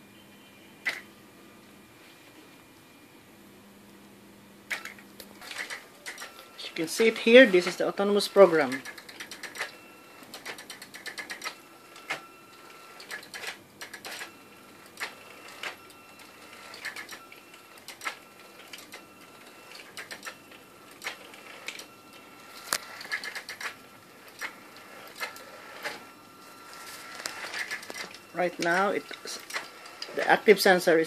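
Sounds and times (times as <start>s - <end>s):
small motors whining: 14.2s - 31.0s.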